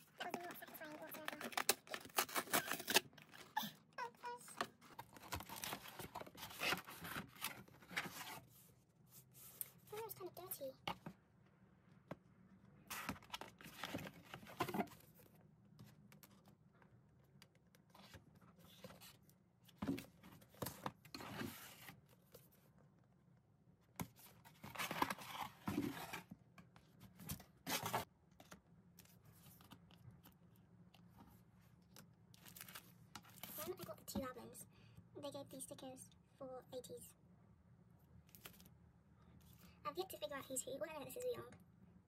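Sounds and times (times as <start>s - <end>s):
paper and cardboard rustling: 0.0s - 3.6s, 4.5s - 10.3s, 12.9s - 16.4s, 24.0s - 26.3s, 26.9s - 30.0s, 32.4s - 34.1s.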